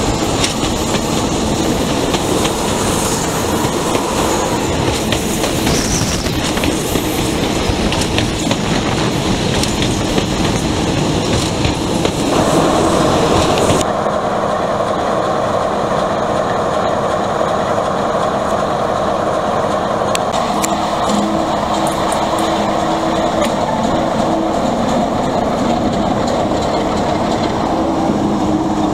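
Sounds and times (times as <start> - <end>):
train wheel clatter: 0.0 - 14.0, 14.9 - 28.9
diesel locomotive engine running: 0.0 - 28.9
rushing air: 0.0 - 28.9
steady tone: 12.3 - 28.9.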